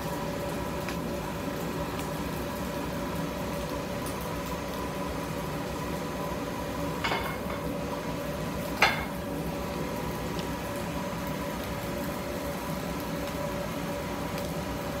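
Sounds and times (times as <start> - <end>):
kitchen machine hum: 0.0 - 15.0
crockery clattering: 7.1 - 7.7, 8.8 - 9.2.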